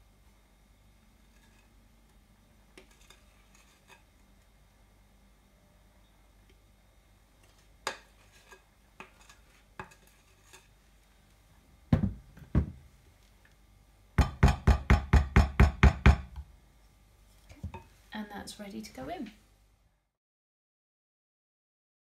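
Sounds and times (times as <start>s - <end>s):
spatula scraping glass bowl: 1.2s - 1.8s, 2.8s - 4.1s, 7.4s - 10.8s
spatula knocking glass dish: 14.2s - 16.3s.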